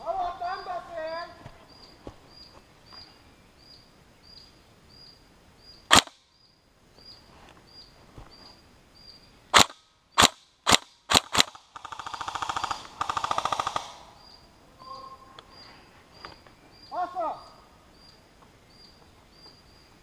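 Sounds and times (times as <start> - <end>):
faint chirp: 0.0 - 9.5, 14.0 - 20.0
airsoft gun shots: 5.9 - 6.2, 9.5 - 14.2.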